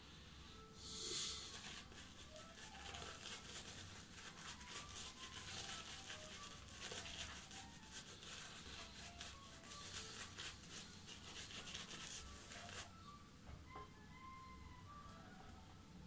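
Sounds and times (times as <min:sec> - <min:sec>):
shaving brush lathering: 0:01.4 - 0:12.9.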